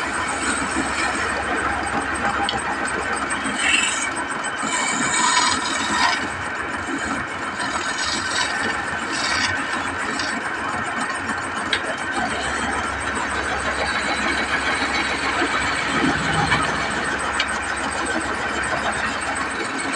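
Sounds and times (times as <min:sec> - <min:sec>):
lathe tool scraping wood: 0:03.3 - 0:10.7, 0:12.2 - 0:19.9.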